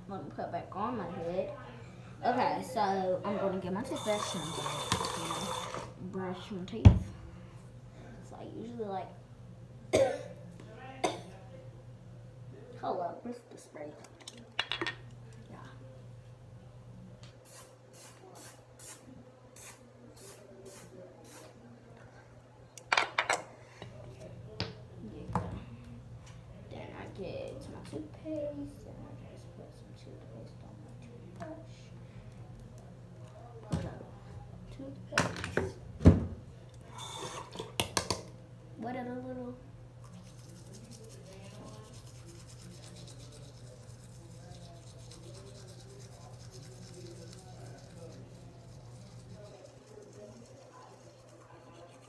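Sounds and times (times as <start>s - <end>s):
toothbrush scrubbing teeth: 40.0s - 52.0s.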